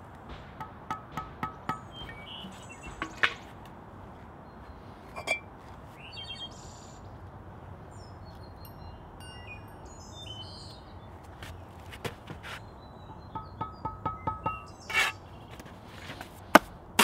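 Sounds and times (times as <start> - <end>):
steady background noise: 0.0 - 17.0
small birds chirping: 1.2 - 16.5
steel trowel clinking on brick: 13.4 - 15.3.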